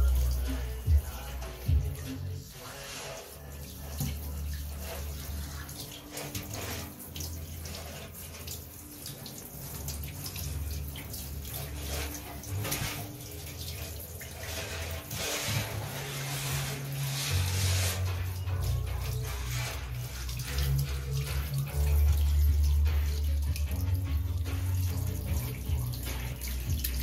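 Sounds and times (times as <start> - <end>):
shower head spraying water: 0.0 - 27.0
water splashing into bathtub: 0.0 - 27.0.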